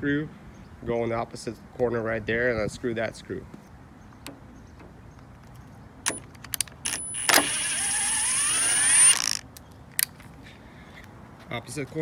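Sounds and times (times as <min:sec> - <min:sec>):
drill bit clicks: 0:06.1 - 0:09.6
cordless drill whining: 0:06.8 - 0:09.4.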